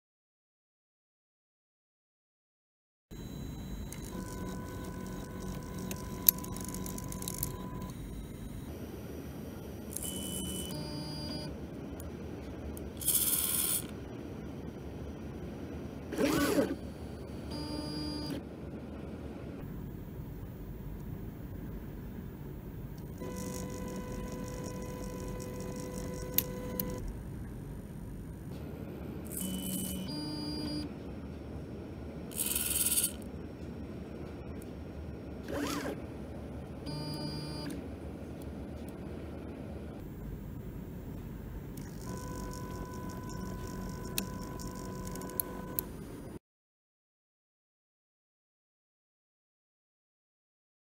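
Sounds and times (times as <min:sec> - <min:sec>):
stepper motors whining: 0:03.1 - 0:14.2, 0:16.1 - 0:18.5, 0:22.7 - 0:36.2, 0:38.8 - 0:46.3.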